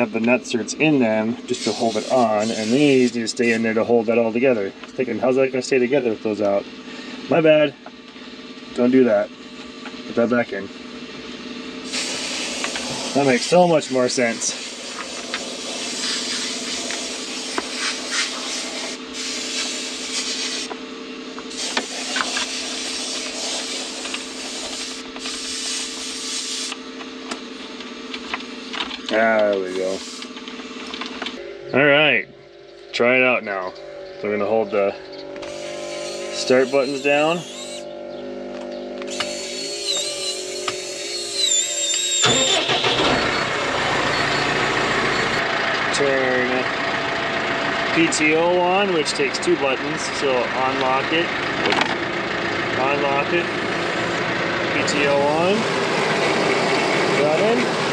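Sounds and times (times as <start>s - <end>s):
diesel tractor engine running: 0.0s - 57.9s
screwdriver turning screws: 35.4s - 37.8s, 39.0s - 42.2s
starter cranking: 38.6s - 44.4s.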